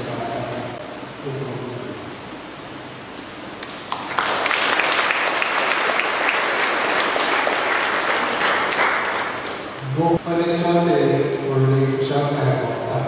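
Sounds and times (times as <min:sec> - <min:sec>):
congregation applauding: 0:03.6 - 0:09.8.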